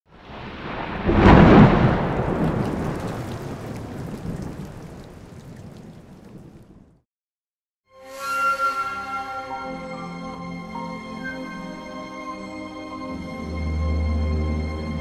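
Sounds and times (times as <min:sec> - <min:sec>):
heavy rain: 0:00.1 - 0:07.0
thunder rumbling: 0:00.1 - 0:07.0.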